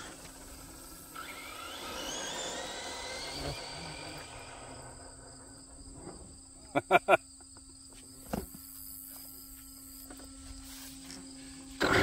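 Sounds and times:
electric motor whine rising: 0.0 - 5.6.

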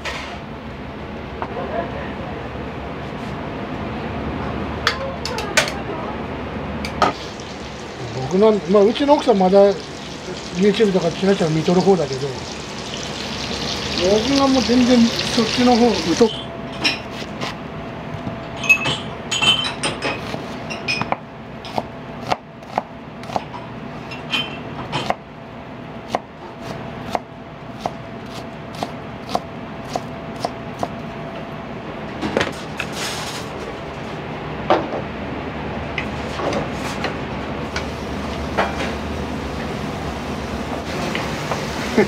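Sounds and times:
low steady hum: 7.1 - 17.0
dishes clinking: 16.0 - 17.1, 18.6 - 21.1.

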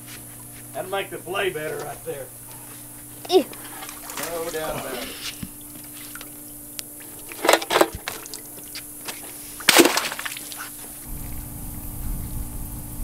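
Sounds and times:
fish splashing in water: 5.6 - 11.0
low rumble: 11.1 - 13.0.

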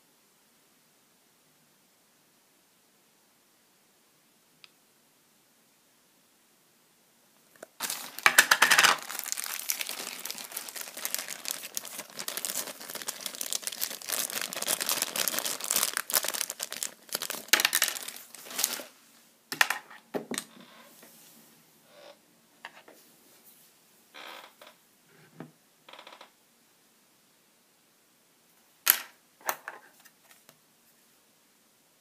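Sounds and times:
plastic bag crinkling: 7.6 - 18.9.

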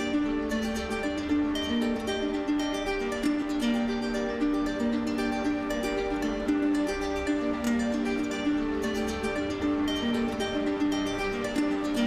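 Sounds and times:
plucked string melody: 0.0 - 12.0.

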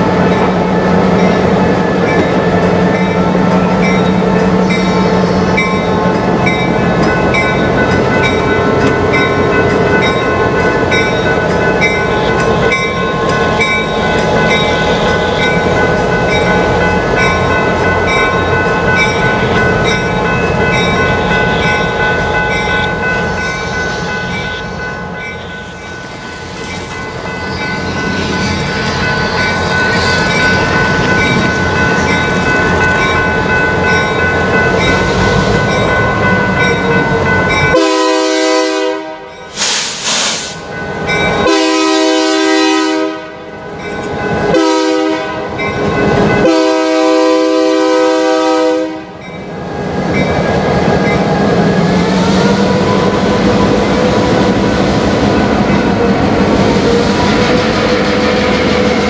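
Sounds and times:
locomotive bell ringing: 0.0 - 39.6, 40.6 - 59.0
diesel locomotive engines running: 0.0 - 59.0.

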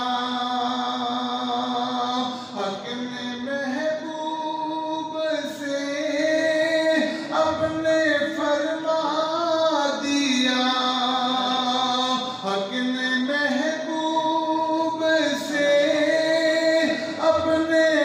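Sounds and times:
man singing unaccompanied: 0.0 - 18.0.

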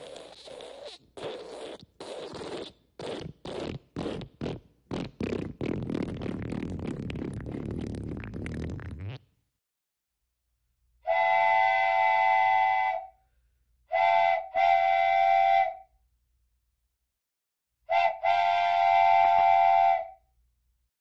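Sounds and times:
steam train whistle: 11.1 - 13.2, 13.9 - 15.9, 17.9 - 20.2.

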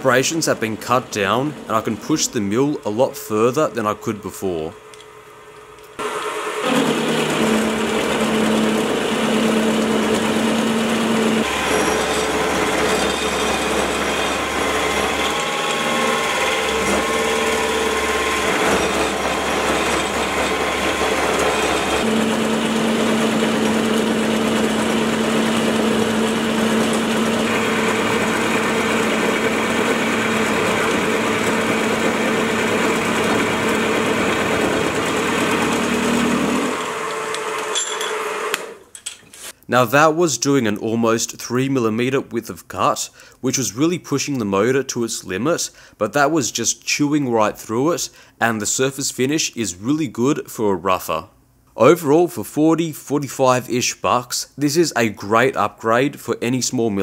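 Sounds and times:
milling machine cutting steel: 0.0 - 5.1, 6.0 - 39.4
spindle motor hum: 0.0 - 38.8.

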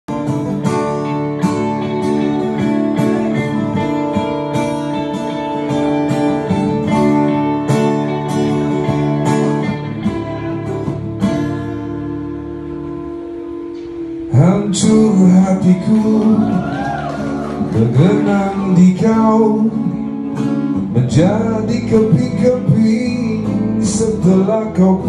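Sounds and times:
guitars strumming chords: 0.1 - 25.0.

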